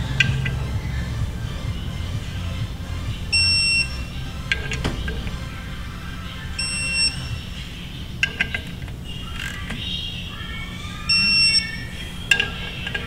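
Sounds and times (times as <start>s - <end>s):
short high beeps: 6.6s - 7.4s
torque wrench clicks: 11.2s - 13.0s.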